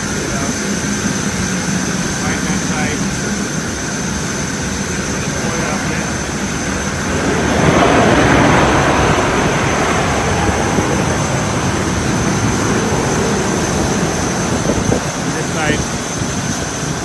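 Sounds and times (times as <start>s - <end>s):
aircraft machinery rumbling hiss: 0.0s - 17.0s
constant high whine: 0.0s - 17.0s.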